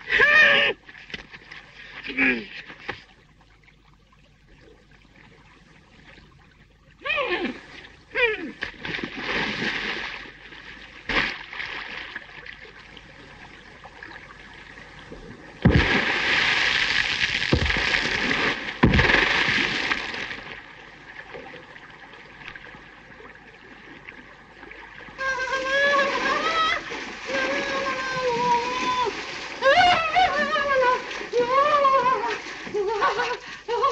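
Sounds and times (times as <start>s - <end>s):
person splashing in water: 8.7s - 10.3s, 15.6s - 20.6s
water slaps: 11.0s - 12.6s, 15.6s - 20.6s.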